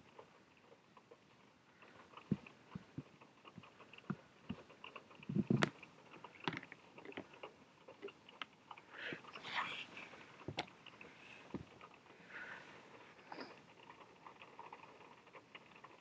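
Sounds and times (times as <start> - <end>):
small clicks and taps: 0.0 - 9.4, 10.0 - 12.2.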